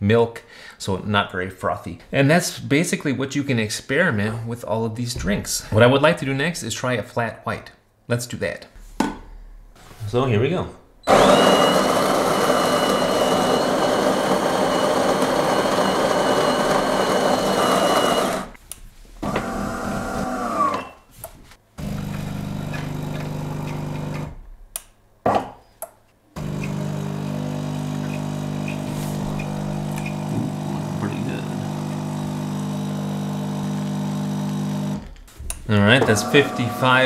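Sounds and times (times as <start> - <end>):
brew motor whirring: 11.1 - 18.6, 21.8 - 24.4, 26.4 - 35.2, 36.0 - 37.0
coffee grinder whining: 11.1 - 18.6, 19.2 - 20.8, 21.8 - 24.3, 26.4 - 35.2, 36.0 - 37.0
pump humming: 26.4 - 35.0, 36.0 - 37.0.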